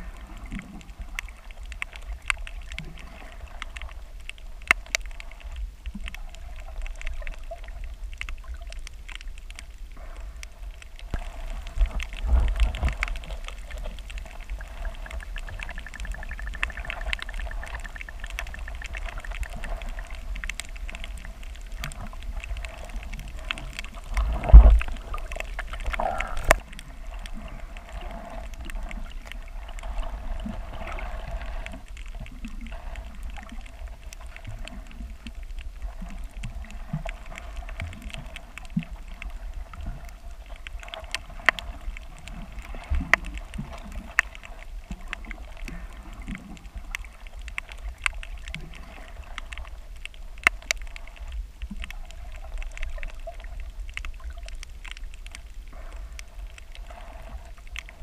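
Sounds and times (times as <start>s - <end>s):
faint steady hum: 0.0s - 58.0s
muffled rumble of moving water: 0.0s - 58.0s
underwater clicks and ticks: 0.0s - 58.0s.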